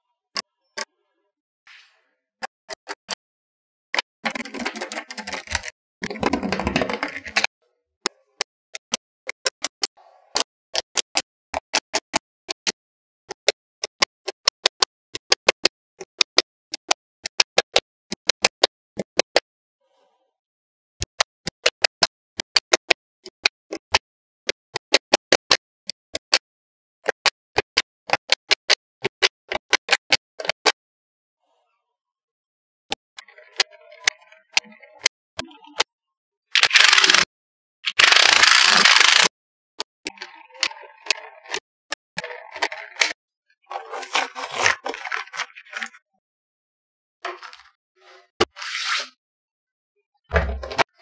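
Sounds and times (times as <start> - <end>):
magnetic balls clicking: 36.6 - 37.3, 37.9 - 43.2.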